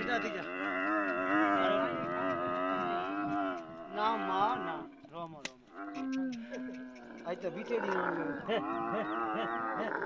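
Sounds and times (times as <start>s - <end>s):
camels bellowing: 0.0s - 10.0s
sharp click: 5.4s - 5.6s.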